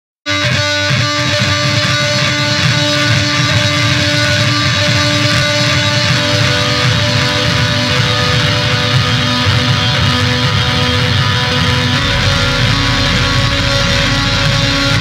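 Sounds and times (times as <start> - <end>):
distorted noise music: 0.7 - 15.0
held tones: 11.9 - 15.0.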